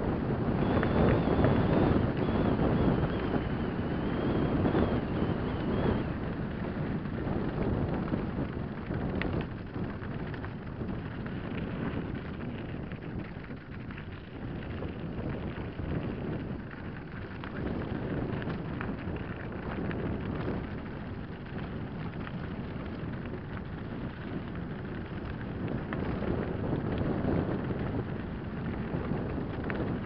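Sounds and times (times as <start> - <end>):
wind buffeting microphone: 0.0 - 30.0
bike tyres crunching on gravel: 6.2 - 30.0.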